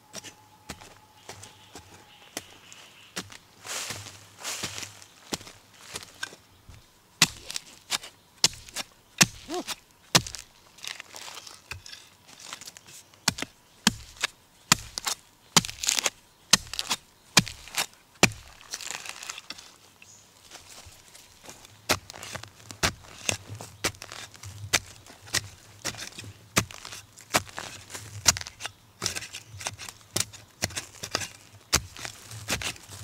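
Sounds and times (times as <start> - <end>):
digging tool chopping soil: 7.2 - 19.7, 21.6 - 33.0.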